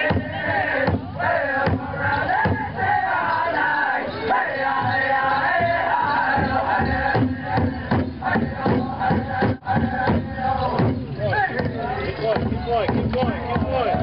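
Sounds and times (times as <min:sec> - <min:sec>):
steady big drumbeat: 0:00.0 - 0:03.2, 0:04.7 - 0:14.0
group singing a chanted song: 0:00.0 - 0:14.0.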